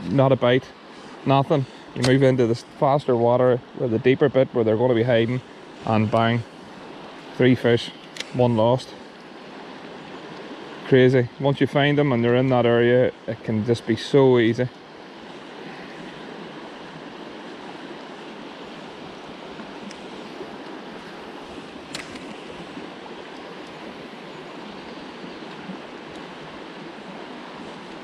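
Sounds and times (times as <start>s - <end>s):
river rushing over riffles: 0.0s - 28.0s
sharp click: 21.9s - 22.4s.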